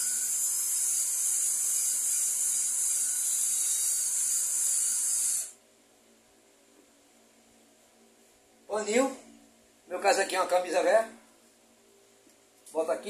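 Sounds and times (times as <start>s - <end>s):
drill spinning sanding hiss: 0.0s - 5.6s.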